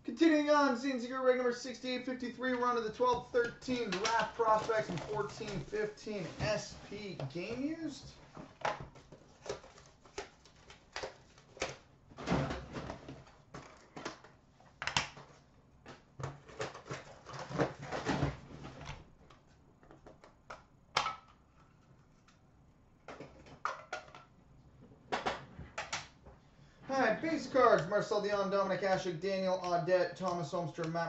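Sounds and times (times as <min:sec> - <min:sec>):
packaging rustling: 0:02.5 - 0:11.9.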